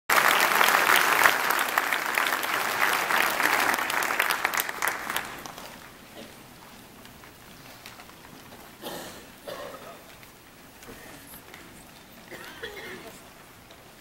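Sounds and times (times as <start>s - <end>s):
congregation applauding: 0.1s - 6.6s.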